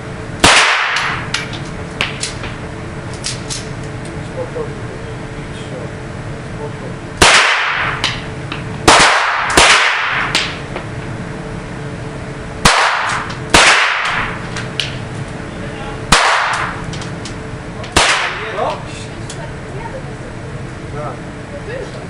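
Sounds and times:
pistol shots echoing indoors: 0:00.4 - 0:01.2, 0:07.2 - 0:08.0, 0:08.9 - 0:10.3, 0:12.6 - 0:14.3, 0:16.1 - 0:16.8, 0:18.0 - 0:18.4
weaker gunshot pops: 0:12.7 - 0:14.3.

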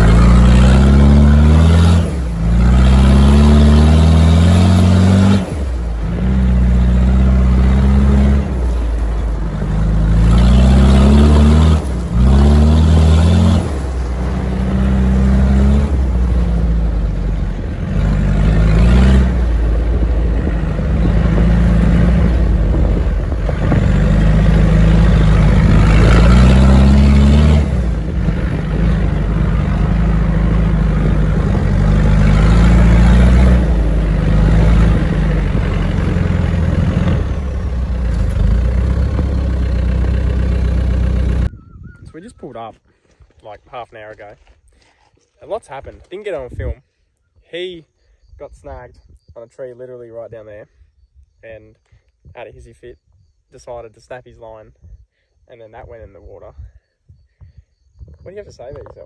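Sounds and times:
diesel engine revving through gears: 0:00.0 - 0:41.5.

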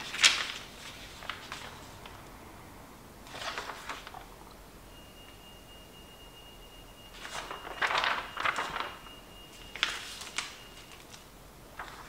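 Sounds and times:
paper rustling: 0:00.0 - 0:02.3, 0:03.3 - 0:04.5, 0:07.1 - 0:12.0.

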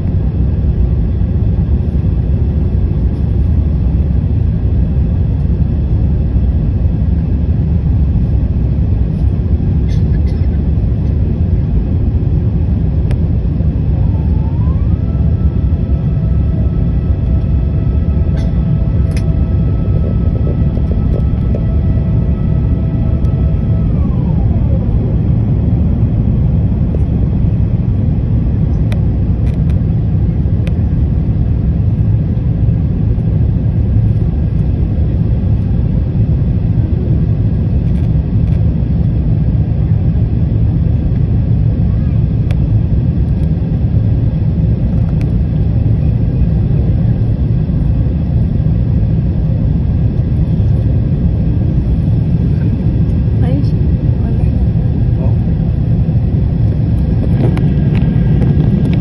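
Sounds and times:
jet cabin engine rumble: 0:00.0 - 0:59.0
tone gliding down: 0:14.0 - 0:26.4.

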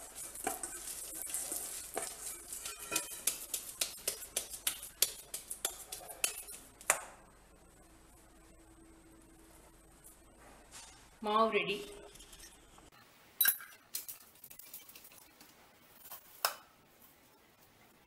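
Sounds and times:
dough slapping in steel bowl: 0:00.0 - 0:07.1.

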